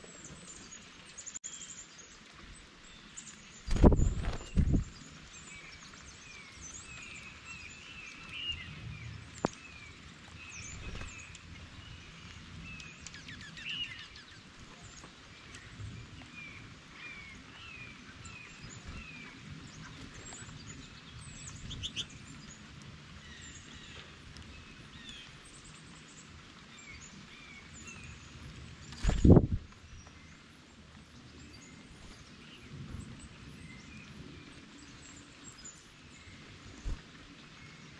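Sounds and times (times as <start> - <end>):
light rain hissing: 0.0 - 37.9
small songbirds chirping: 0.0 - 37.9.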